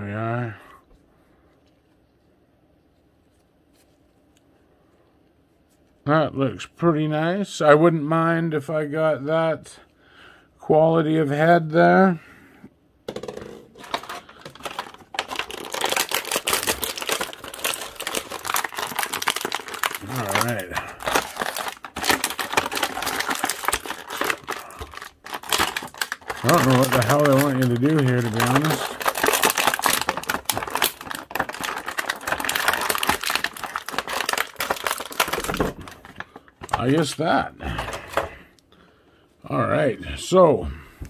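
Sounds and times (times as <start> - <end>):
plastic packaging crinkling: 13.7 - 38.4.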